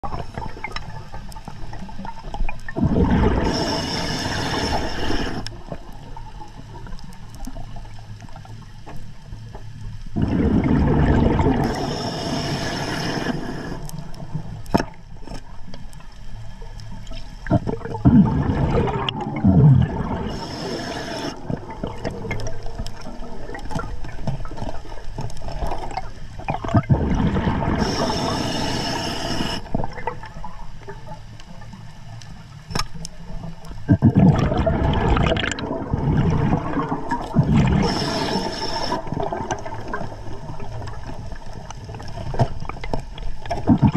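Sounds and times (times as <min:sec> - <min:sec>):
diver breathing through regulator: 0:03.0 - 0:05.5, 0:11.5 - 0:14.1, 0:19.4 - 0:21.5, 0:27.0 - 0:29.8, 0:36.7 - 0:39.2.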